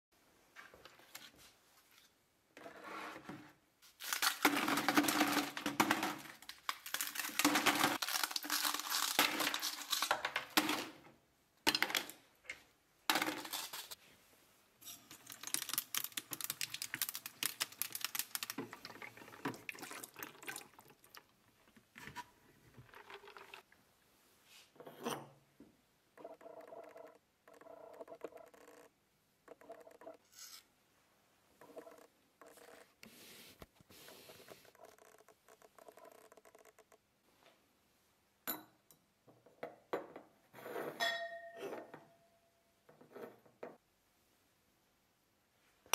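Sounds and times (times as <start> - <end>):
ice cubes cracking from trays: 4.0 - 11.0, 15.2 - 18.9
ice clattering into plastic bucket: 4.1 - 11.0
glassware clinking: 41.0 - 42.1.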